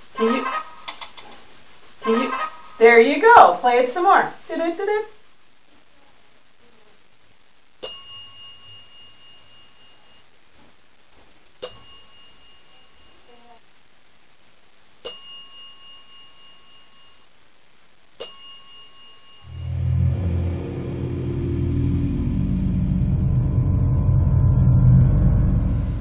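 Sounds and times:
bell dinging: 0:07.8 - 0:10.2, 0:11.6 - 0:13.3, 0:15.0 - 0:17.2, 0:18.2 - 0:19.8.

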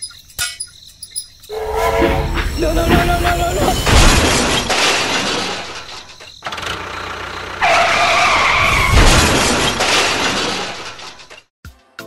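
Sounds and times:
high screech: 0:01.5 - 0:04.0
heavy crash: 0:01.5 - 0:06.2, 0:08.4 - 0:11.5
vehicle crashing and scraping: 0:01.5 - 0:11.5.

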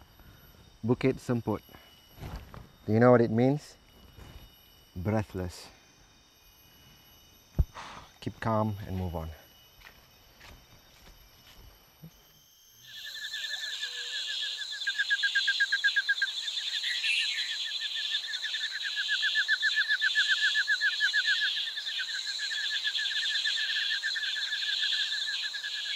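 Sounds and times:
pulsing animal calls chorus: 0:12.8 - 0:25.9.

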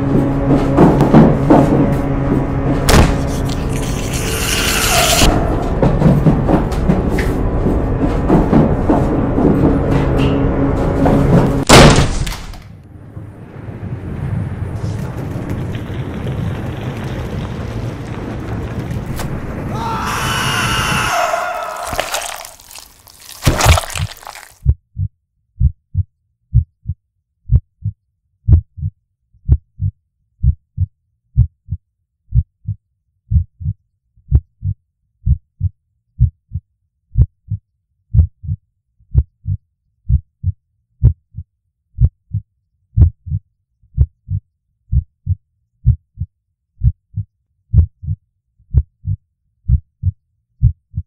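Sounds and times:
heartbeat thuds: 0:37.2 - 0:41.4, 0:42.0 - 0:42.4, 0:43.0 - 0:43.4, 0:44.0 - 0:51.0.

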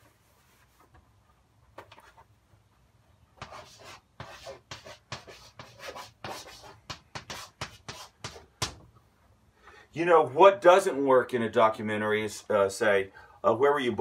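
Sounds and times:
chalk writing on blackboard: 0:03.4 - 0:08.8.

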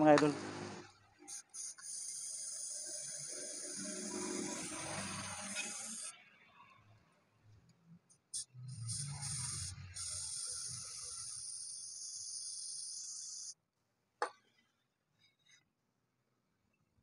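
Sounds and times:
spray paint can hissing: 0:01.2 - 0:06.2, 0:08.3 - 0:13.6.

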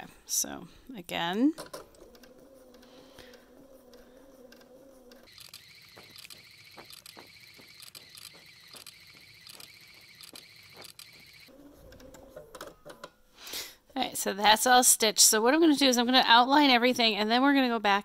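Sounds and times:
sewing machine stitching: 0:01.8 - 0:12.2.

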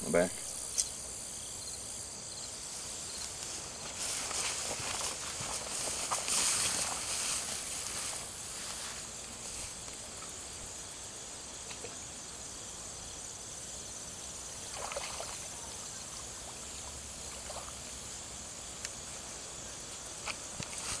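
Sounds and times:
insect trilling: 0:00.0 - 0:21.0
water splash: 0:14.7 - 0:15.8.

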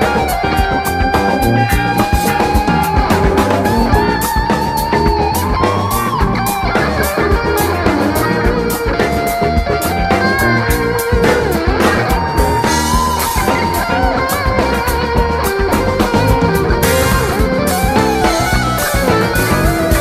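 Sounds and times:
electric guitar solo: 0:00.0 - 0:20.0
funk bass and drums backing: 0:00.0 - 0:20.0.

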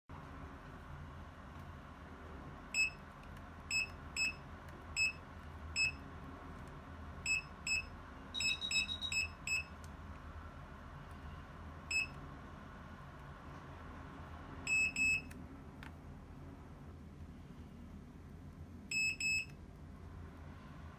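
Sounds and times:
longer beeps: 0:02.8 - 0:03.0, 0:03.7 - 0:04.4, 0:05.0 - 0:05.2, 0:05.8 - 0:06.0, 0:07.3 - 0:09.7, 0:14.7 - 0:15.3, 0:18.9 - 0:19.5
short high beeps: 0:07.3 - 0:09.7.

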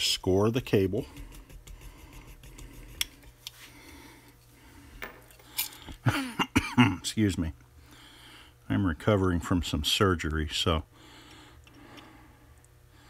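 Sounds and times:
man coughing: 0:06.0 - 0:07.1.

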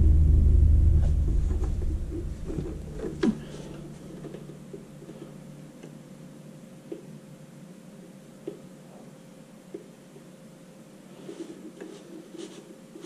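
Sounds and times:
handling noise deep rumble: 0:00.0 - 0:04.4.

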